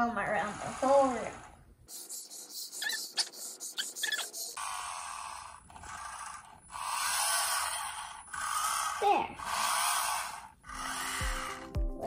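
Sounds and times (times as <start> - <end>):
toy robot motor whirring: 0.0 - 11.7.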